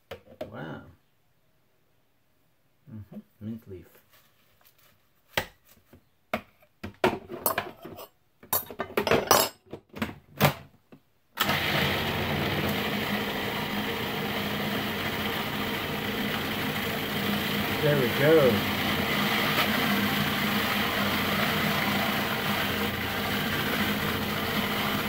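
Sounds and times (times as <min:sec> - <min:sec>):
food processor motor running: 0:11.4 - 0:25.0.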